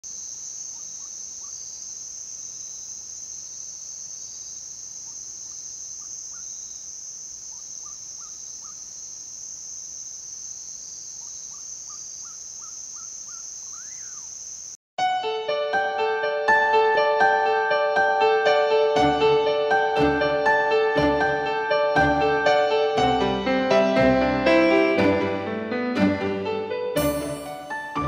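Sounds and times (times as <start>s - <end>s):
bird calling: 5.0s - 6.8s, 7.5s - 8.9s, 11.2s - 14.4s.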